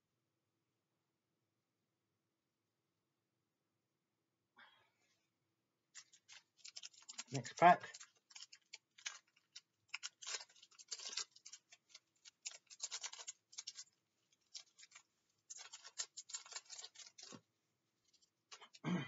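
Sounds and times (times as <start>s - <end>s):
foil wrapper crinkling and tearing: 6.0s - 18.8s.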